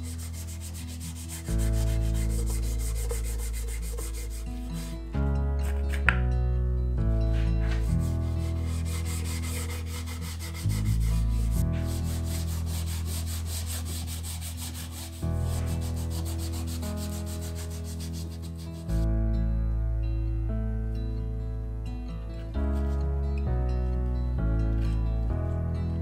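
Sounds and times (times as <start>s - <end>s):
fast brushing rhythm: 0.0s - 5.0s, 7.6s - 19.0s.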